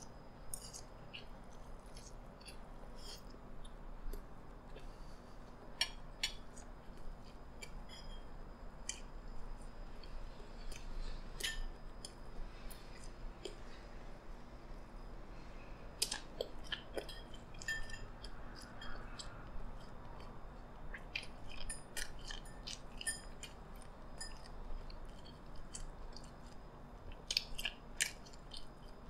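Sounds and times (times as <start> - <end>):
wet chewing: 0.5 - 5.1, 16.0 - 29.0.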